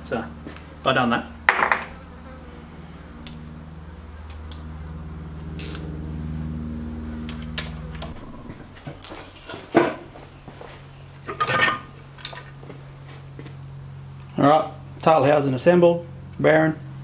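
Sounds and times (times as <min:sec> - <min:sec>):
electric buzzing hum: 0:00.0 - 0:17.0.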